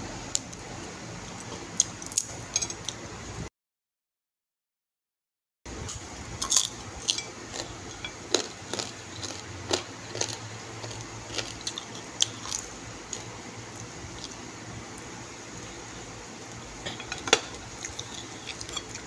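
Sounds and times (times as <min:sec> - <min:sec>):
low steady hum: 0:05.7 - 0:19.0
eating chicken by hand: 0:05.8 - 0:19.0.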